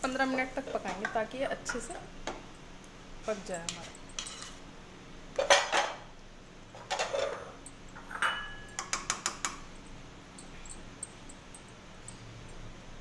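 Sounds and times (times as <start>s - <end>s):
spoon scraping a pan: 3.6s - 4.6s
spoon tapping a pan: 8.2s - 9.6s.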